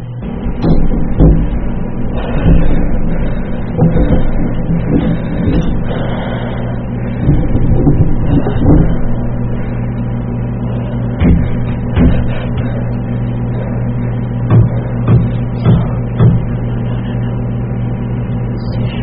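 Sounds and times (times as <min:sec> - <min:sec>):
low droning hum: 0:00.0 - 0:19.0
dull knocks: 0:00.3 - 0:06.1, 0:07.2 - 0:09.2, 0:11.2 - 0:12.8, 0:14.5 - 0:16.6.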